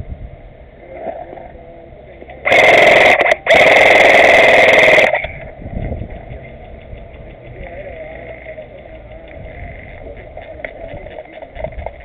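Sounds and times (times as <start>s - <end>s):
airsoft rifle firing bursts: 2.5s - 5.3s.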